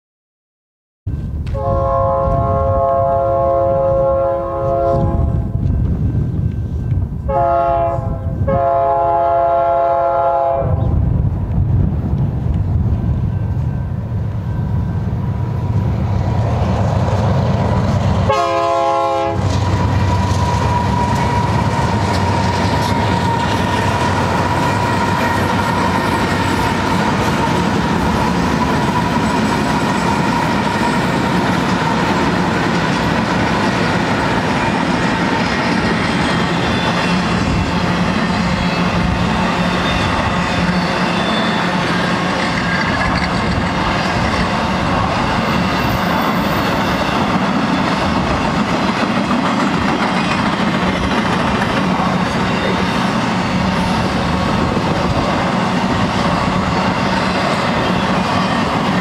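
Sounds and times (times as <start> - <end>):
train rumbling and clattering past: 1.1 - 59.0
locomotive air horn blasts: 1.5 - 5.5, 7.3 - 10.9, 18.2 - 19.7
steady high tone: 34.1 - 48.5, 51.2 - 59.0.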